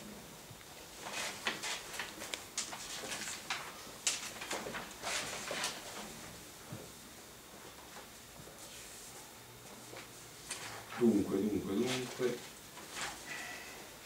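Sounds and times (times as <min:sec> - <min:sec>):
paper pages rustling: 0:00.9 - 0:06.2, 0:09.8 - 0:11.0, 0:11.8 - 0:13.2.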